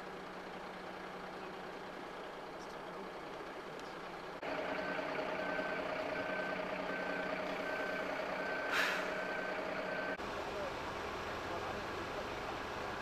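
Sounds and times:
engine hum: 0.0 - 13.0
reversing beeper: 4.5 - 10.2
short hiss: 8.7 - 9.2.

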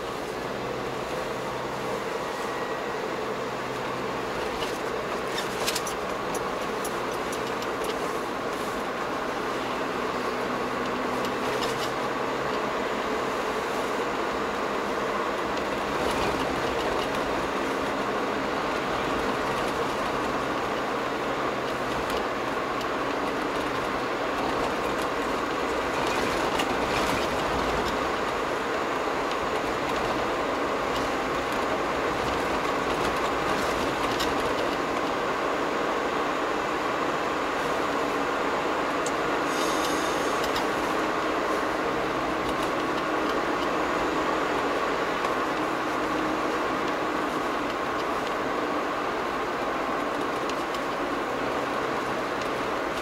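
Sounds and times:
road and tyre noise in car: 0.0 - 53.0.

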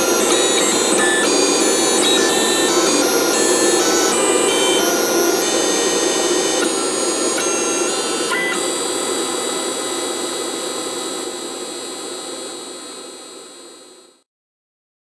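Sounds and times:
stepper motors whining: 0.0 - 8.7.

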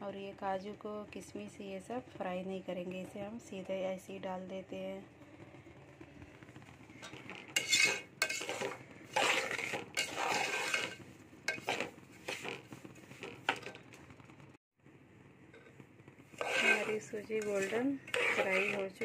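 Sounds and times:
metal spoon scraping a steel pot: 7.0 - 13.8, 16.3 - 19.0.

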